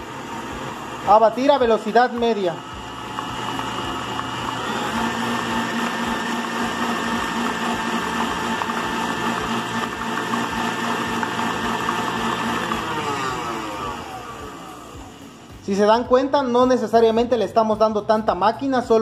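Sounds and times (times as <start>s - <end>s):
stand mixer motor whine: 0.0s - 16.5s
whisk churning batter: 0.3s - 15.1s.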